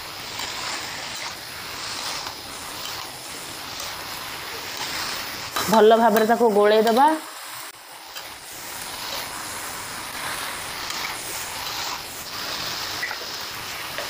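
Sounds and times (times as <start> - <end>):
chicken sizzling in oil: 0.0 - 14.0.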